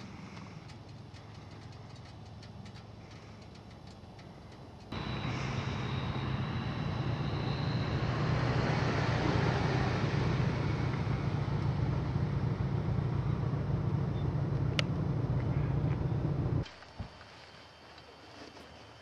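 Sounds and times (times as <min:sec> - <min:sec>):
motor vehicle running: 0:00.0 - 0:16.7.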